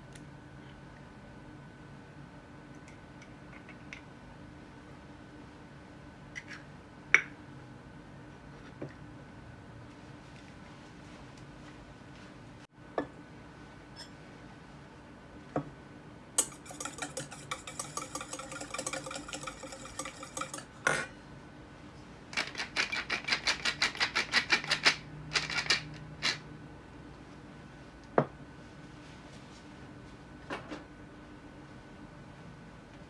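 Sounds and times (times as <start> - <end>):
pepper mill grinding: 16.4 - 20.7, 22.4 - 26.4
whisk rattling in metal bowl: 16.4 - 20.7.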